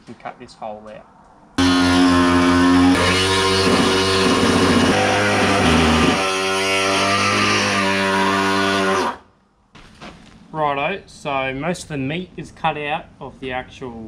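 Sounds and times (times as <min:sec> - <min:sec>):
guitar chords: 0:01.6 - 0:09.1.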